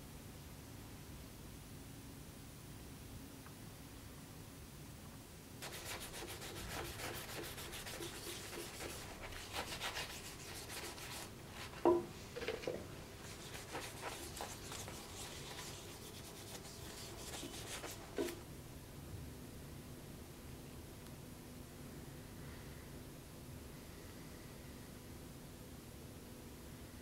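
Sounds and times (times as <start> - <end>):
abrasive pad scrubbing metal: 5.6 - 11.8, 13.2 - 18.4.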